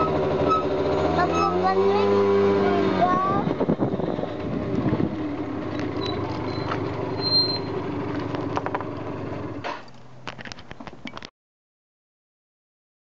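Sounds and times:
motor scooter engine idling: 0.0 - 9.8.

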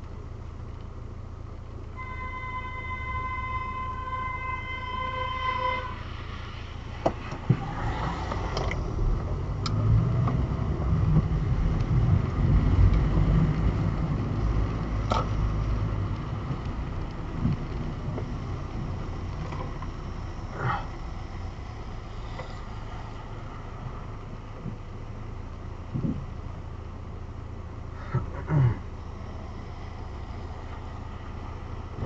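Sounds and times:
car engine rumble: 0.0 - 32.0
tyres on a wet road: 0.0 - 32.0
steady high tone: 2.0 - 6.6.

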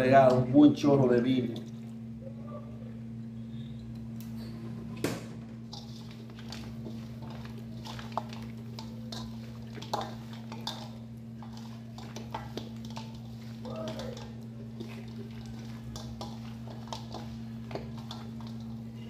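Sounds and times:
hands squishing wet meat: 5.7 - 19.0.

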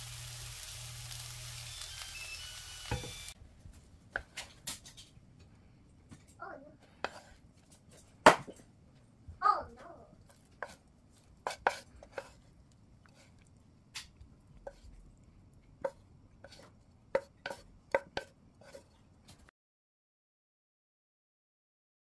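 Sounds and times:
short wavering squeak: 1.6 - 3.4
spatula knocking and scraping pan: 2.9 - 3.3, 6.1 - 8.6, 10.2 - 15.0, 15.7 - 19.5.

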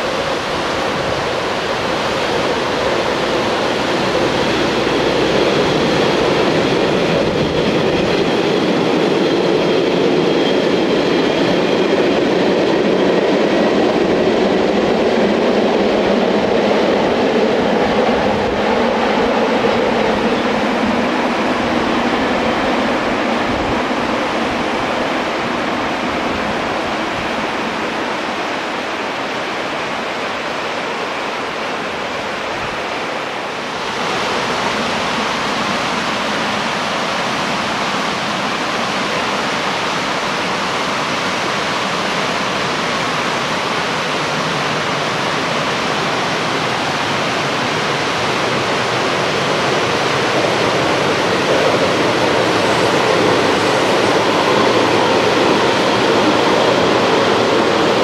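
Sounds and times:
river rushing over stones: 20.2 - 58.0.

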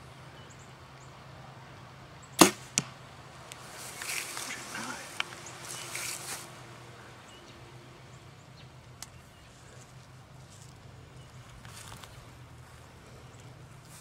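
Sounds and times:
arrow hitting foam target: 2.4 - 2.9
steady hum: 2.4 - 14.0.

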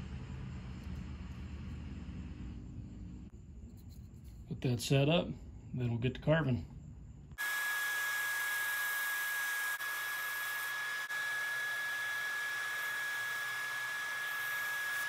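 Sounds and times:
belt sander running: 7.4 - 15.0.

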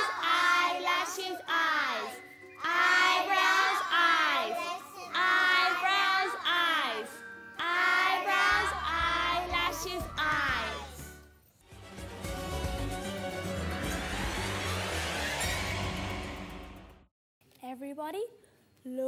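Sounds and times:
children singing: 0.0 - 10.8.

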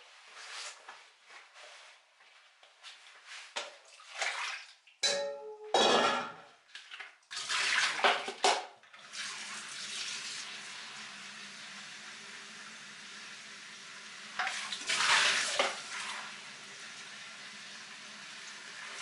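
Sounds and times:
tap water splashing: 3.6 - 4.8, 6.7 - 10.0, 14.3 - 16.2
metal pot clinking: 5.0 - 6.5.

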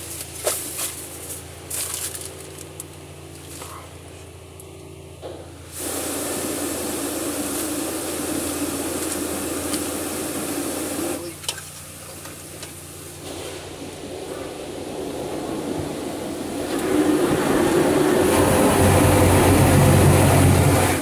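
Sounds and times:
car engine idling: 0.0 - 21.0
water jets spraying onto car: 5.6 - 21.0.

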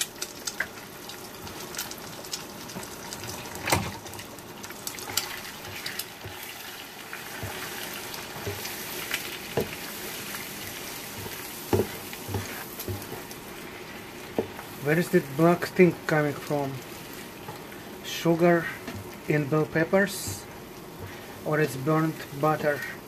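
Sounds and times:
eggs sizzling in a frying pan: 0.0 - 23.0
spatula scraping a pan: 5.0 - 13.4.

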